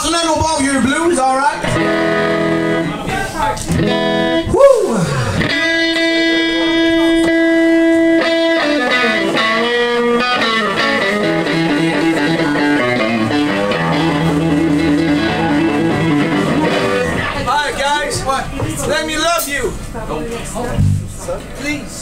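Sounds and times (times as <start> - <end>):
electric guitar solo: 1.6 - 17.5, 20.8 - 21.2.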